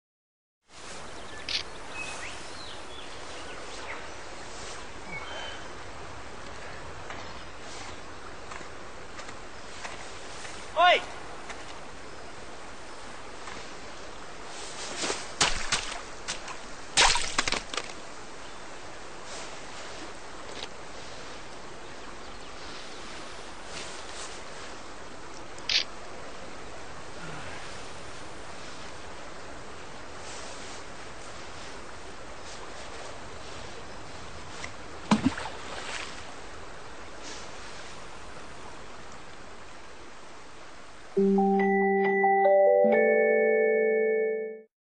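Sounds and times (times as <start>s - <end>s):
faint rustling swishes: 3.7s - 5.0s, 22.6s - 24.9s, 37.2s - 38.2s
splashing in shallow water: 14.8s - 18.0s, 34.5s - 36.4s
steady hiss: 18.0s - 41.2s.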